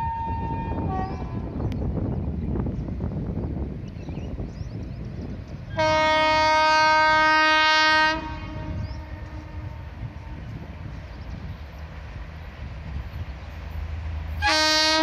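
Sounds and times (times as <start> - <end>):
locomotive horn blast: 0.0 - 1.5, 5.7 - 10.5, 14.4 - 15.0.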